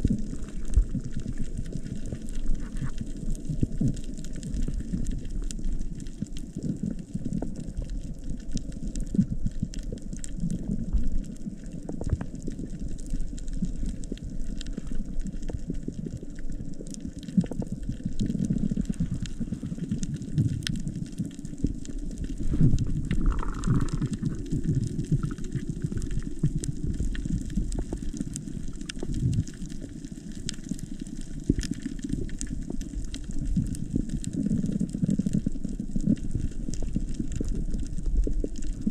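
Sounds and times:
underwater rush of water: 0.0s - 38.9s
sharp underwater clicks: 22.6s - 33.0s.

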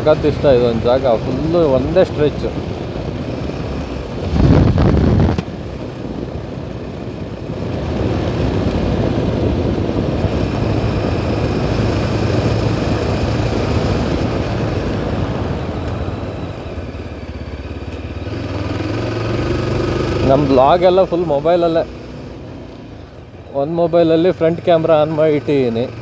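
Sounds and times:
wind rush on microphone: 0.0s - 17.4s
motorcycle engine running: 0.0s - 26.0s
road and wind noise: 0.0s - 26.0s.

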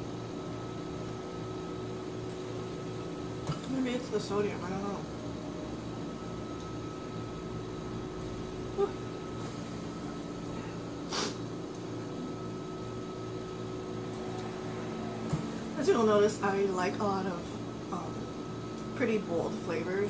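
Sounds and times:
room hum: 0.0s - 20.0s
person blowing nose: 11.1s - 11.4s.

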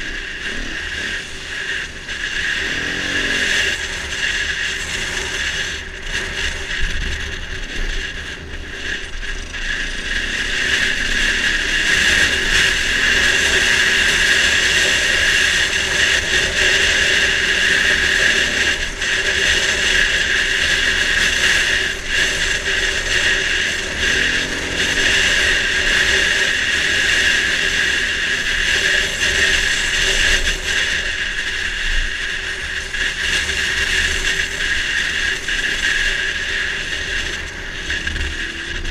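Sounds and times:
dirt bike engine running: 0.0s - 38.9s.

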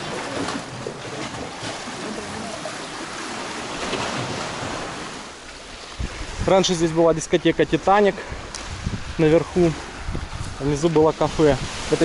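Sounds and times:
sea waves breaking ashore: 0.0s - 12.0s.

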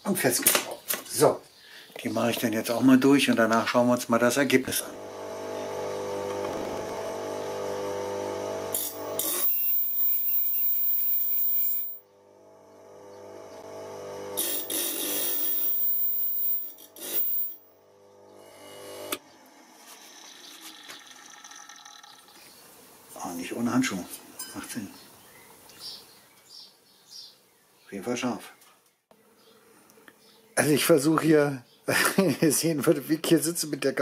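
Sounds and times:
sharpening machine motor running: 4.7s - 19.2s
grinding wheel hissing on saw blade: 8.7s - 12.0s, 14.3s - 17.7s.

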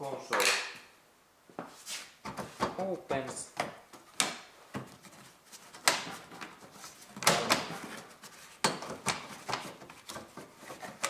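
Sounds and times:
plastic scraping rubs: 4.8s - 11.0s.

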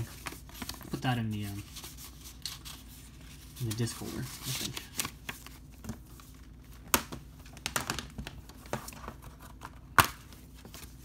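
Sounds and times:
paper card rustling: 0.0s - 6.9s.

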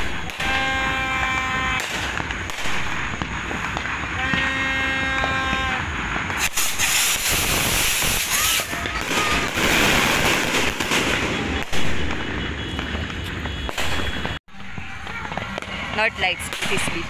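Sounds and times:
skyrockets hissing and crackling: 0.0s - 12.2s
firework pops: 0.0s - 15.8s
sharp firework bang: 0.0s - 15.8s.

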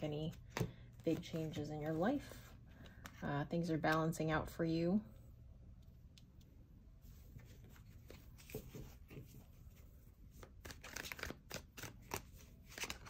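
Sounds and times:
cards being shuffled: 10.3s - 13.0s.

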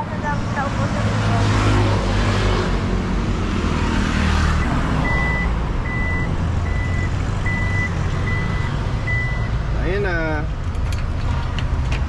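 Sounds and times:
reversing alarm beeping: 4.6s - 9.6s.

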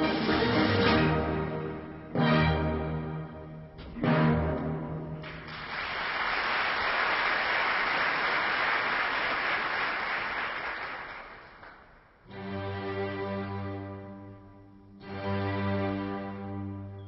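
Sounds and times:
audience applauding: 5.2s - 12.2s.

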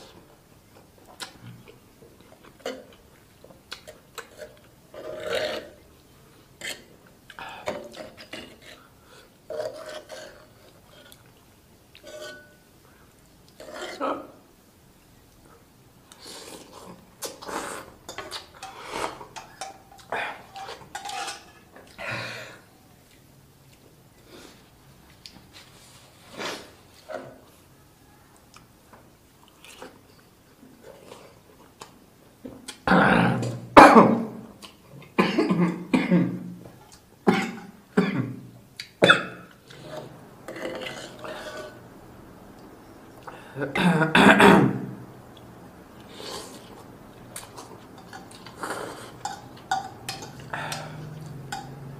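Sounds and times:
fork clinking on a pan: 12.0s - 12.6s, 49.2s - 51.8s
mouth noises eating noodles: 45.2s - 49.3s
slurping noodles: 46.0s - 47.7s.

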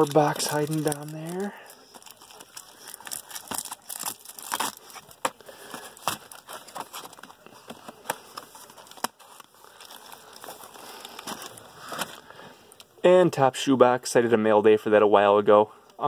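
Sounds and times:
cardboard boxes rustling: 0.0s - 12.3s.

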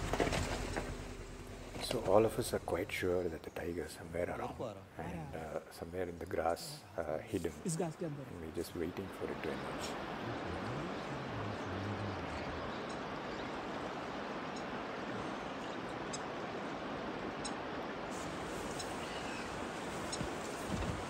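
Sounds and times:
river rushing over stones: 8.2s - 21.0s
faint bird chirps: 9.6s - 16.4s, 18.6s - 20.5s.

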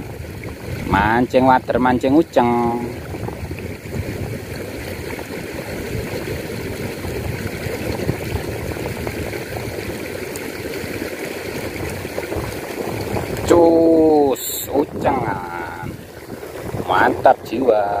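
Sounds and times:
small stream flowing: 0.0s - 18.0s.

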